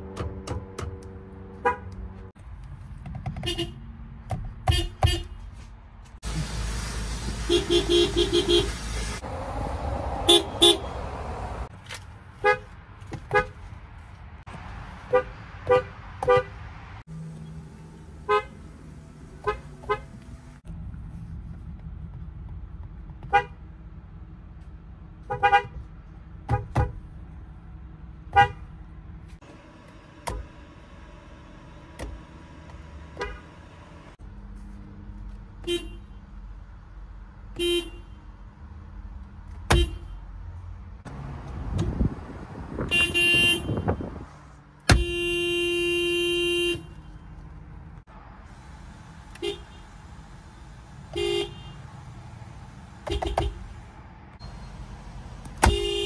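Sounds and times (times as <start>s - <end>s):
car horns tooting: 1.5s - 2.2s, 3.4s - 3.8s, 4.6s - 5.5s, 7.4s - 9.2s, 10.3s - 11.0s, 13.3s - 13.6s, 15.0s - 16.7s, 18.2s - 18.6s, 19.4s - 20.2s, 23.3s - 23.6s, 25.2s - 25.8s, 28.3s - 28.8s, 33.0s - 34.1s, 35.6s - 36.2s, 37.5s - 38.2s, 39.7s - 40.2s, 42.8s - 44.2s, 44.8s - 47.4s, 49.3s - 50.0s, 51.1s - 52.0s, 53.0s - 53.8s, 55.6s - 56.0s.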